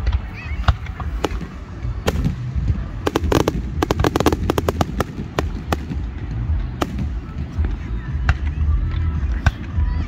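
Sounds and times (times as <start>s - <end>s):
fireworks bangs and pops: 0.0s - 8.6s
low rumble: 1.3s - 8.1s.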